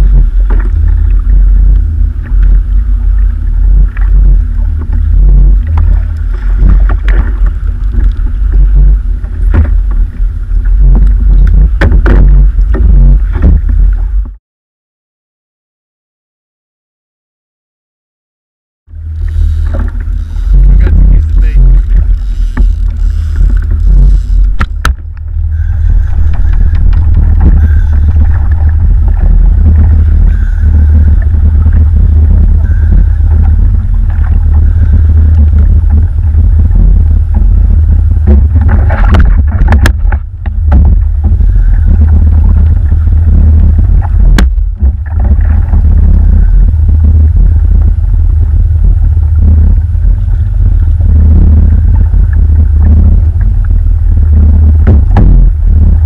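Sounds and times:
wind buffeting microphone: 0.0 - 14.4, 18.9 - 56.0.

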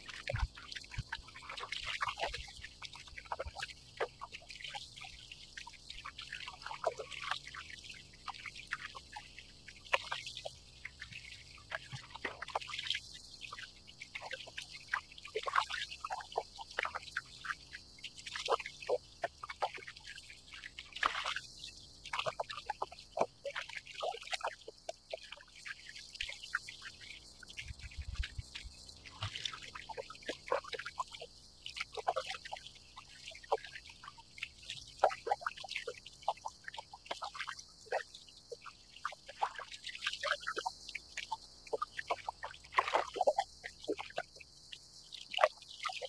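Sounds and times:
cicada chorus: 0.0 - 46.0
small waves lapping against kayak hull: 20.8 - 21.6, 27.7 - 31.2, 40.5 - 44.4.

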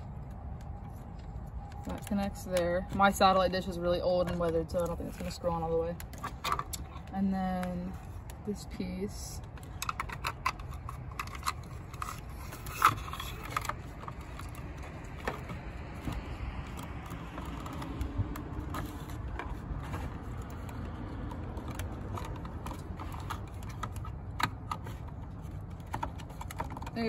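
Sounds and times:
steady low rumble: 0.0 - 27.0
small plastic clicks and scrapes: 9.4 - 27.0.

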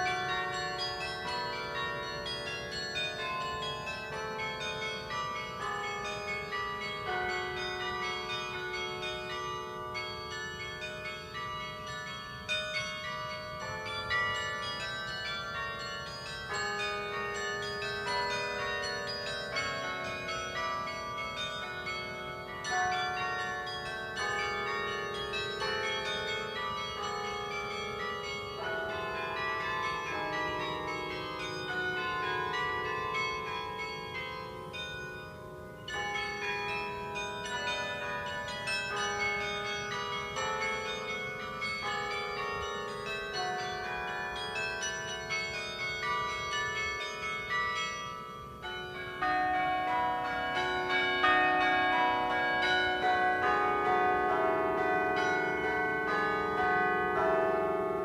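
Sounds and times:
carillon bells playing a tune: 0.0 - 58.0.

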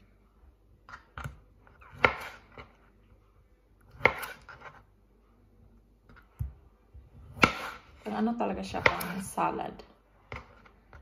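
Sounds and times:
knife chopping on wooden board: 1.1 - 2.8, 3.9 - 4.8, 7.2 - 8.0, 8.8 - 9.3.

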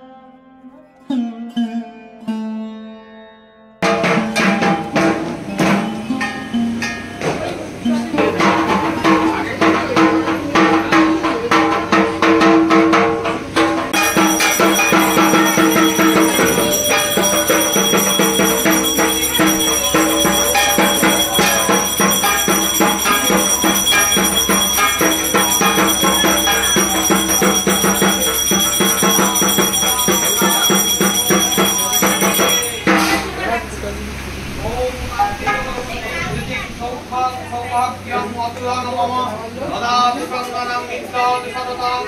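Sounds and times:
fast dense percussion: 8.2 - 33.8
jingling metal: 14.0 - 33.3
high ringing: 14.0 - 33.8.

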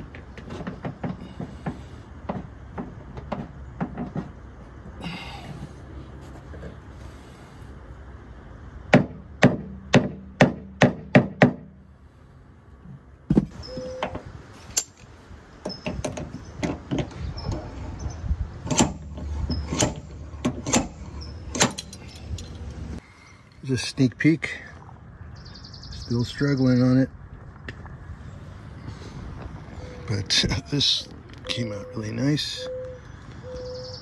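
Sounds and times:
tool tapping on car body metal: 8.9 - 11.7.

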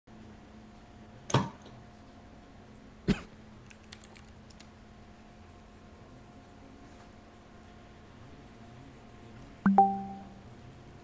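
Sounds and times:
faint steady hum: 0.1 - 11.0
computer keyboard clicks: 3.6 - 4.7.

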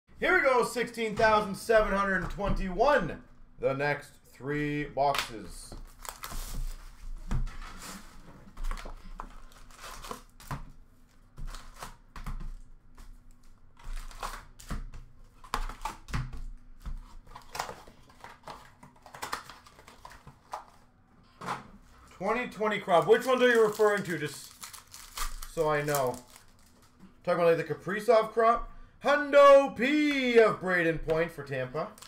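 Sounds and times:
shrink wrap crinkling: 5.8 - 7.0, 8.5 - 12.0, 22.6 - 27.0
cardboard rustling: 5.8 - 12.6, 22.8 - 26.9.

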